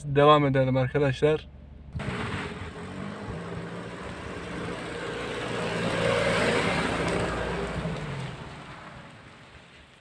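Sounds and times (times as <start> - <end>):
car driving past on gravel: 2.0 - 10.0.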